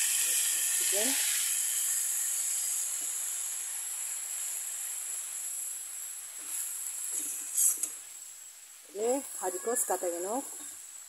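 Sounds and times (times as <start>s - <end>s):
food sizzling in a wok: 0.0s - 11.0s.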